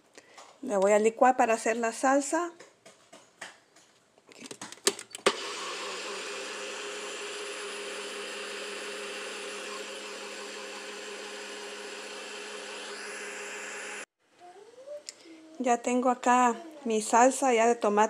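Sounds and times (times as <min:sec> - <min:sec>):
blender motor whining: 0:05.2 - 0:14.1.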